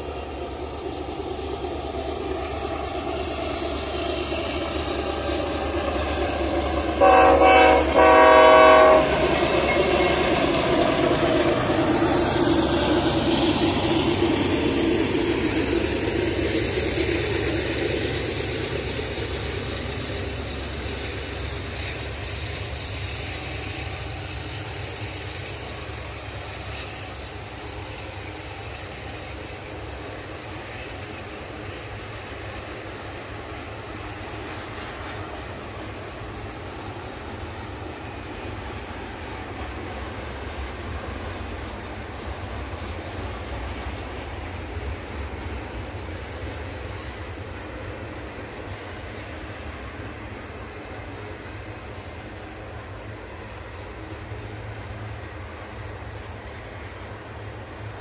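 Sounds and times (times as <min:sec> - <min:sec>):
locomotive passing: 0:00.0 - 0:58.0
train horn blasts: 0:07.0 - 0:09.2.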